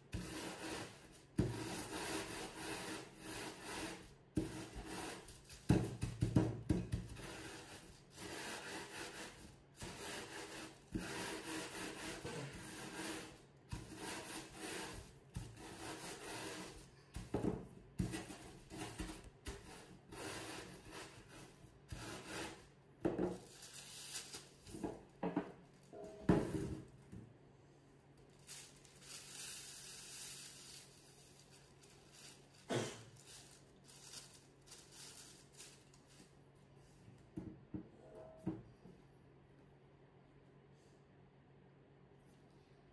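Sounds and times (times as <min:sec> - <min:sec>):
rolling pin crushing biscuits: 0:00.0 - 0:25.6
plastic bag rustling: 0:23.3 - 0:25.9, 0:28.2 - 0:36.4.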